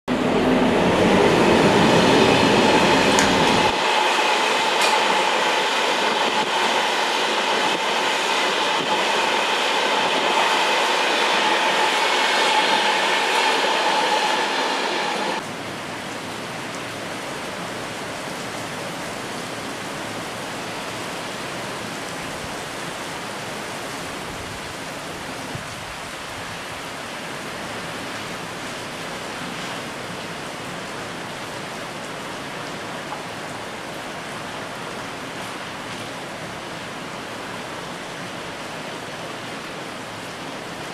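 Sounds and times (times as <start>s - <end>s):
wind: 0.0s - 40.9s
passenger train rushing past: 0.1s - 40.9s
rain: 0.1s - 40.9s.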